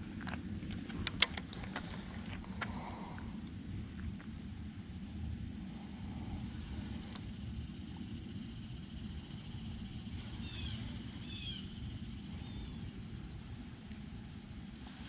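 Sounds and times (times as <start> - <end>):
faint high pulsing buzz: 0.0 - 15.0
low steady rumble: 0.0 - 15.0
bird chirps: 10.4 - 11.8.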